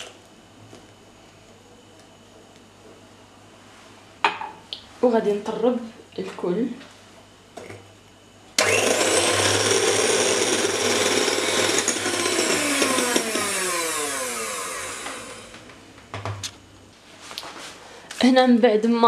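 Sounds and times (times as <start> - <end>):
electric hand mixer whirring: 8.6 - 15.8.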